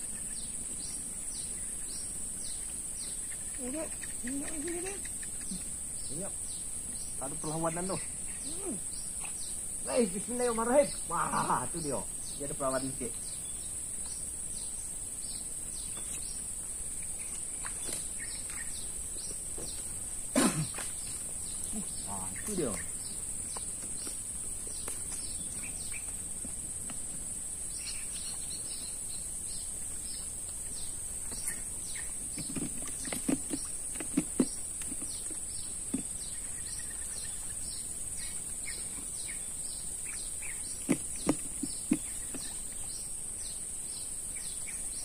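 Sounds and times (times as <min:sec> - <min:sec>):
high-pitched insect drone: 0:00.0 - 0:16.0
bird chirping: 0:00.0 - 0:26.9, 0:27.6 - 0:45.0.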